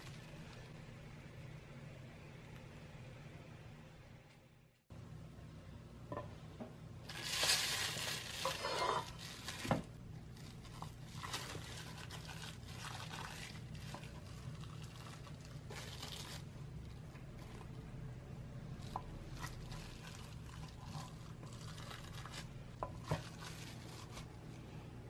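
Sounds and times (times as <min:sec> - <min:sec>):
knife scraping through plastic wrap: 0:07.1 - 0:16.4, 0:18.9 - 0:24.4
cling film crinkling: 0:07.1 - 0:16.5.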